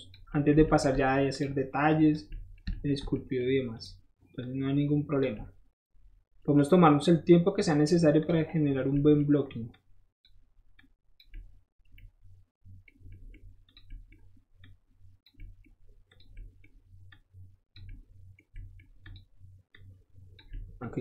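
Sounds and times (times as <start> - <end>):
computer mouse and keyboard clicks: 2.3 - 3.2, 12.8 - 20.8.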